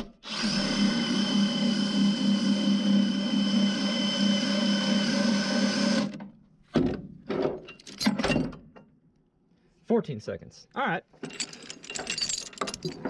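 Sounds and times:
cordless drill running: 0:00.2 - 0:06.2
metal chain clanks: 0:07.6 - 0:08.6, 0:11.2 - 0:13.0.

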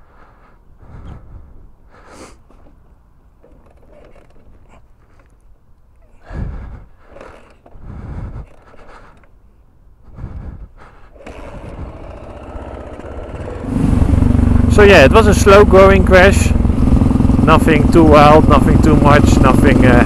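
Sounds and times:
motorcycle engine revving: 0:11.2 - 0:20.0.

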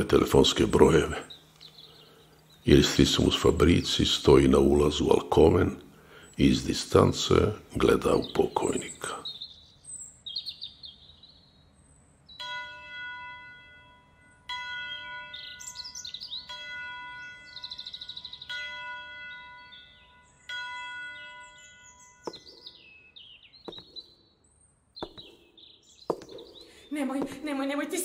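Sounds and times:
birds chirping and trilling: 0:00.0 - 0:28.0
church bell tolling: 0:12.4 - 0:22.9
sharp knocks: 0:22.3 - 0:22.6, 0:23.7 - 0:24.1, 0:25.0 - 0:25.5, 0:26.1 - 0:26.6.

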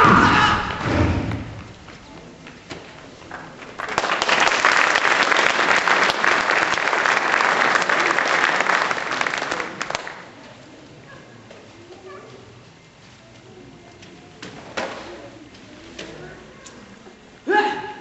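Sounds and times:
audience applauding: 0:03.2 - 0:10.2.

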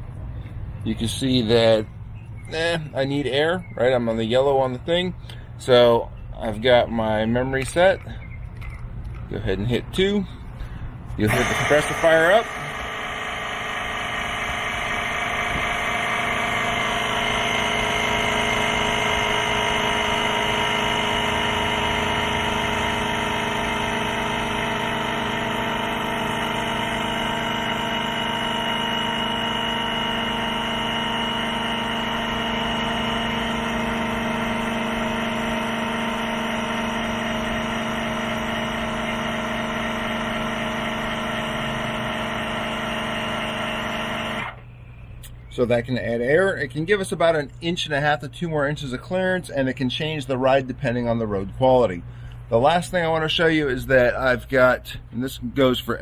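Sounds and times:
air compressor running: 0:09.9 - 0:45.4.

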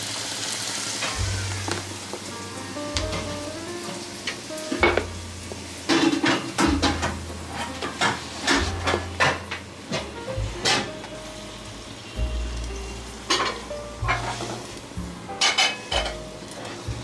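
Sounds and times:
hot oil sizzling in a pan: 0:00.0 - 0:17.0
soft background music: 0:01.1 - 0:17.0
metal utensil clinking on pan: 0:15.4 - 0:16.2.

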